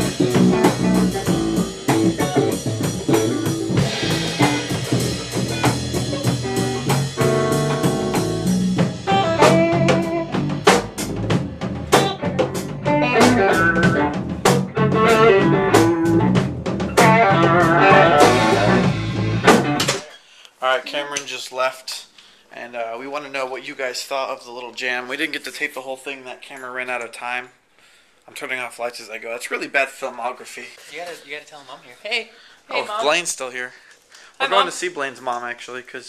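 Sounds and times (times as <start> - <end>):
electric bass: 0.0 - 19.9
electric guitar: 0.0 - 20.0
drum kit and cymbals: 0.0 - 20.2.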